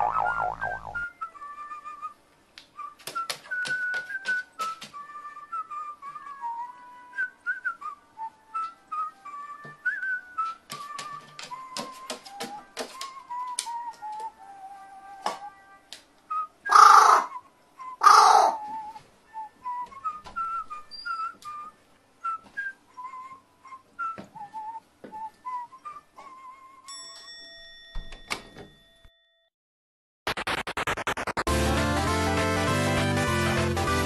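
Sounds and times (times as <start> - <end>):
electronic music: 0.0 - 1.0, 30.3 - 34.0
person whistling a tune: 0.2 - 2.2, 2.8 - 15.5, 16.3 - 18.0, 18.6 - 26.9
crow cawing: 16.7 - 17.3, 18.0 - 18.6.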